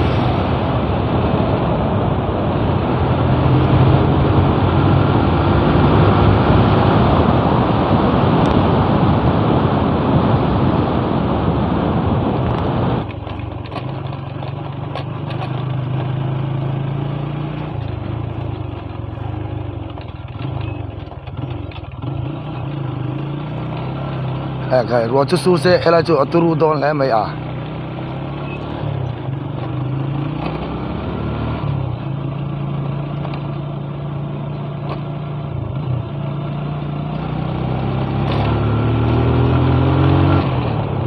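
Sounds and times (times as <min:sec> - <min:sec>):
wind rush on microphone: 0:00.0 - 0:13.7
motorcycle engine running: 0:12.4 - 0:41.0.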